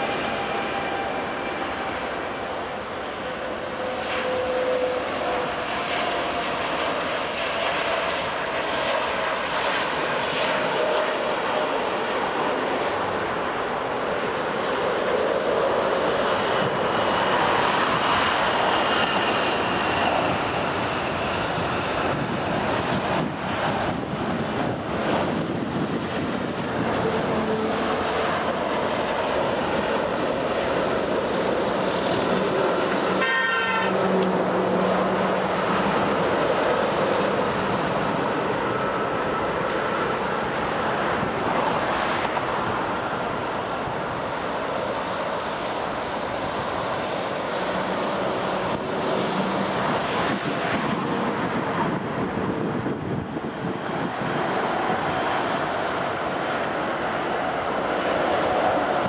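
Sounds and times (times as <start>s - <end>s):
jet engines roaring with whine: 0.0s - 59.0s
short horn-like toot: 33.2s - 34.1s.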